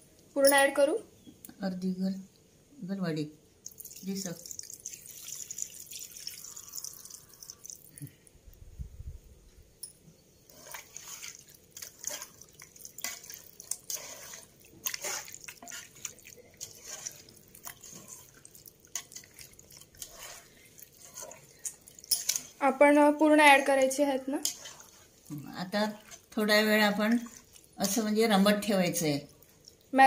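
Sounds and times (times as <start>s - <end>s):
hand squelching wet chicken: 10.7s - 22.0s.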